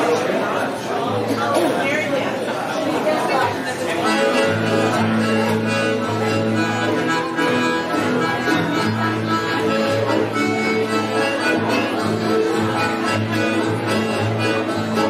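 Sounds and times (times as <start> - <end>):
live band music: 4.0 - 15.0.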